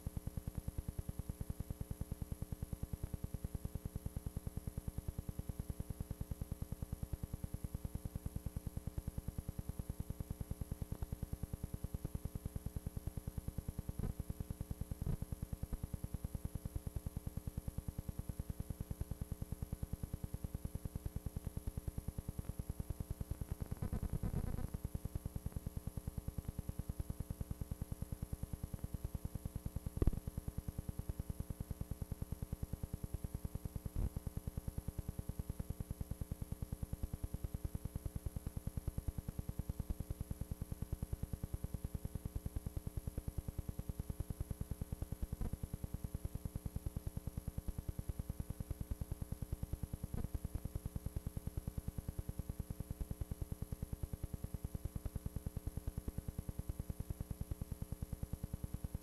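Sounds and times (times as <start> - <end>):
pulsing electrical hum: 19.6 - 29.1.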